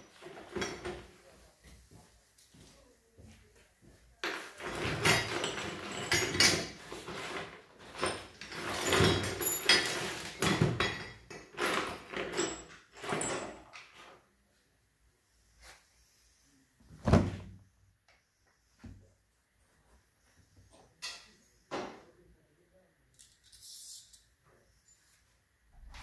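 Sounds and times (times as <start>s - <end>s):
metal tools clattering: 0.1s - 1.1s, 4.2s - 14.0s.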